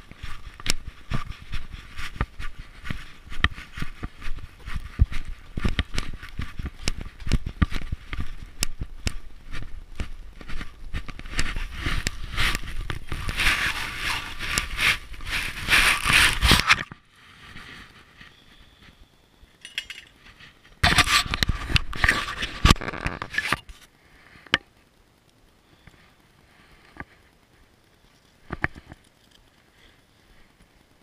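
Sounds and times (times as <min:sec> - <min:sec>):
rustling against microphone: 0:00.0 - 0:24.4.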